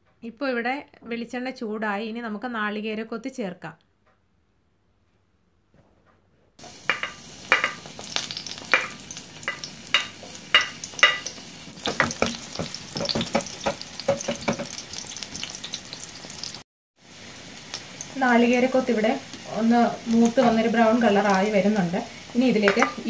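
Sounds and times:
coconut sizzling in hot oil: 0:06.6 - 0:23.0.

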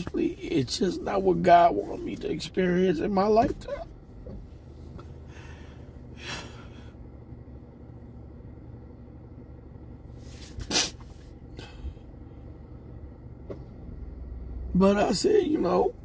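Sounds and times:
steady low hum: 0:00.0 - 0:16.0
man sniffling while crying: 0:05.2 - 0:07.0, 0:10.4 - 0:12.0.

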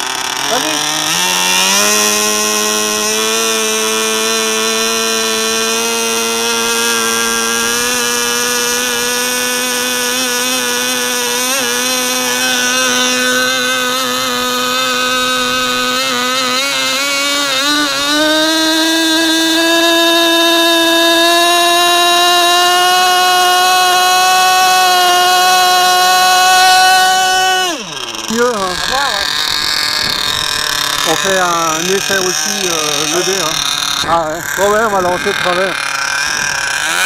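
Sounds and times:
model aircraft engine whining: 0:00.0 - 0:37.0.

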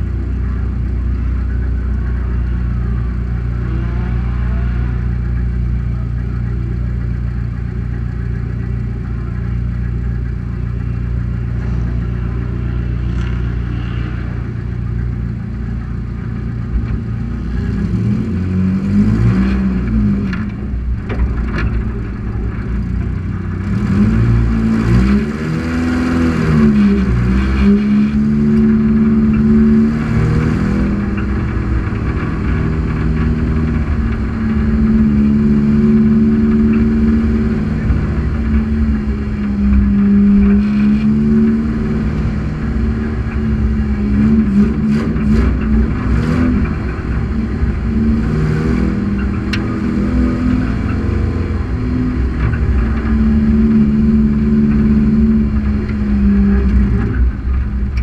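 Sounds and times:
engine rev: 0:00.0 - 0:58.0
race car engine running: 0:00.0 - 0:58.0.

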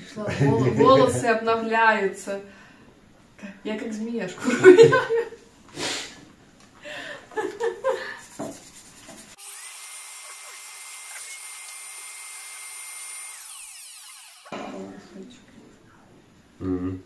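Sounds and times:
vacuum cleaner running: 0:09.4 - 0:14.6
vacuum motor winding down: 0:09.4 - 0:14.6.

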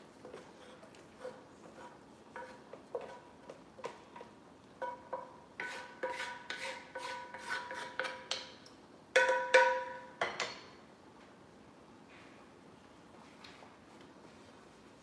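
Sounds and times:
utensil scraping cast iron skillet: 0:00.2 - 0:03.4, 0:04.2 - 0:08.4.

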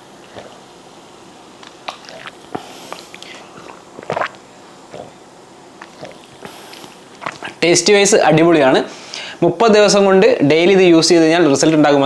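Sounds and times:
person gulping and swallowing: 0:01.6 - 0:05.2, 0:05.8 - 0:07.6.

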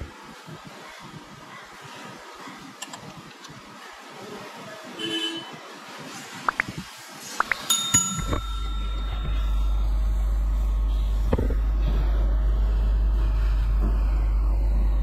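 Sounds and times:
spanner clinking on metal: 0:07.7 - 0:09.7
low rumble: 0:08.2 - 0:15.0.

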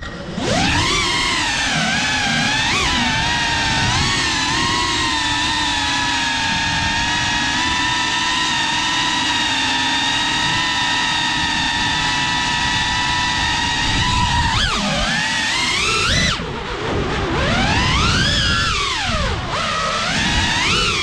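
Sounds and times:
drone motors whining: 0:00.0 - 0:21.0.

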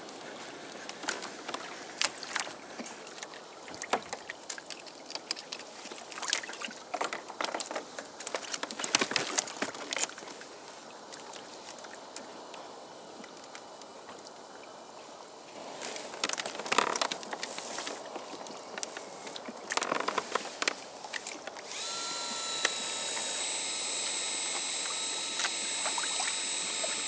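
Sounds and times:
water lapping against kayak hull: 0:00.3 - 0:12.0
fishing gear clicks and knocks: 0:03.8 - 0:10.2, 0:16.1 - 0:21.6.

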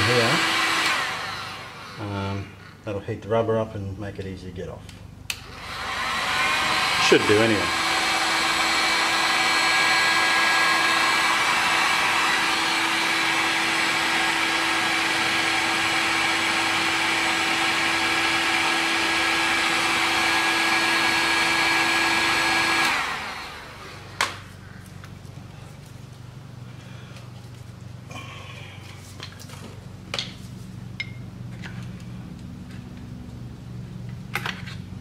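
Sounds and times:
heat gun blower whir: 0:00.0 - 0:02.6, 0:05.3 - 0:25.2.

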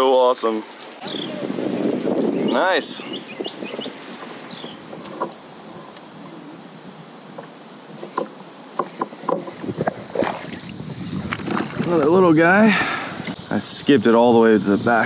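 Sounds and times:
water noise: 0:00.0 - 0:15.0
wind noise: 0:00.9 - 0:15.0
fish splashing at surface: 0:09.8 - 0:12.0.

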